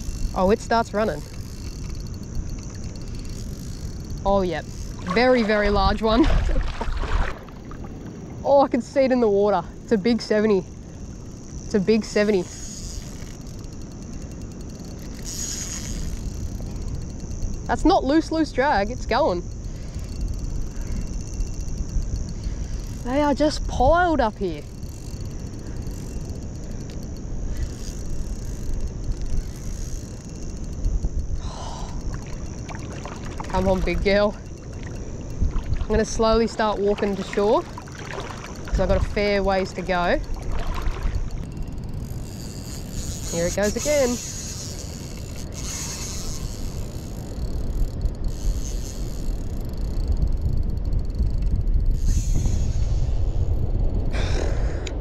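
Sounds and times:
fishing reel ticking: 0:00.0 - 0:55.0
wind rumble on microphone: 0:00.0 - 0:55.0.

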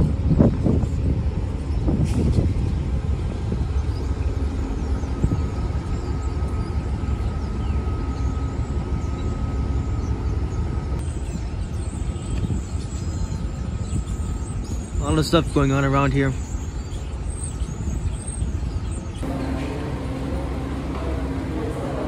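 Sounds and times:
faint steady whine: 0:00.0 - 0:22.0
train rumbling: 0:00.0 - 0:22.0.

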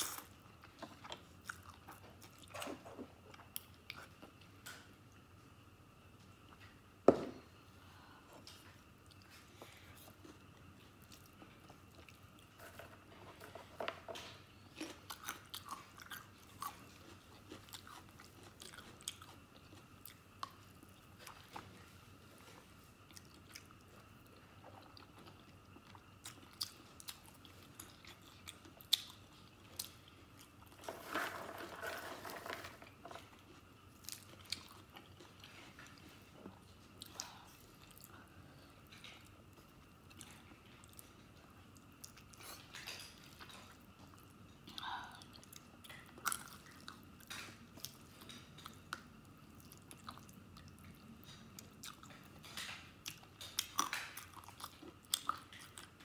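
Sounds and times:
person chewing with wet clicks: 0:00.0 - 0:04.8, 0:14.7 - 0:21.9, 0:22.5 - 0:30.8, 0:33.3 - 0:38.2, 0:38.8 - 0:56.0.

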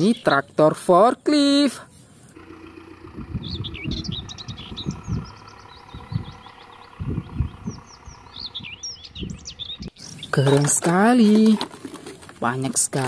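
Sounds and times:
small birds chirping: 0:00.0 - 0:10.8
low thumps and rumble: 0:02.4 - 0:10.0.

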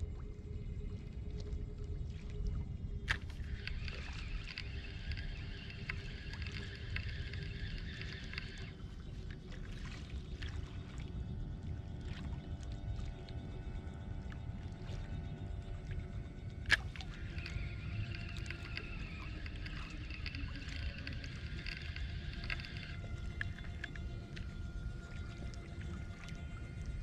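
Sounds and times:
wind on microphone: 0:00.0 - 0:27.0
fishing reel whirring: 0:02.9 - 0:27.0.

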